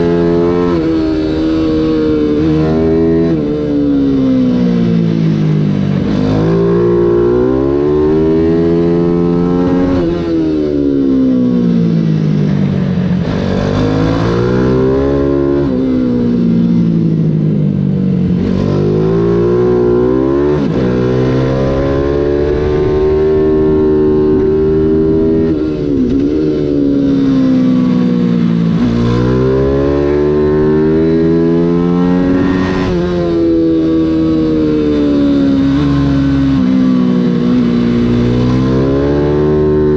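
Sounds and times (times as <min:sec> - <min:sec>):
motorbike engine revving: 0:13.1 - 0:17.4, 0:18.1 - 0:39.9.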